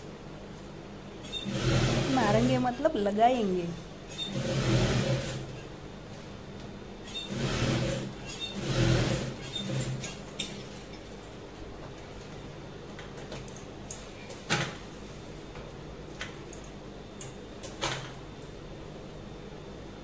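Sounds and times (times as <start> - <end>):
faint motor hum: 0.0 - 20.0
sewing machine stitching: 1.2 - 2.6, 4.1 - 5.6, 7.1 - 10.3.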